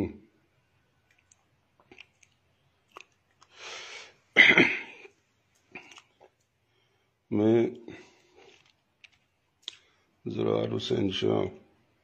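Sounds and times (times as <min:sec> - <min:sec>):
mouth clicks and lip smacks: 0:01.0 - 0:03.6, 0:05.0 - 0:06.6, 0:08.3 - 0:10.0
man breathing: 0:03.5 - 0:04.3.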